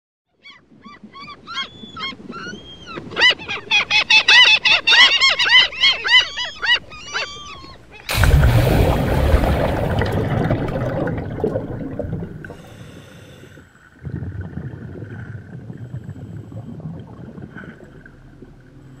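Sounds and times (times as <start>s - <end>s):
seabirds calling: 0.3s - 13.6s
loud plunge into water: 8.1s - 13.0s
rushing water: 8.1s - 13.0s.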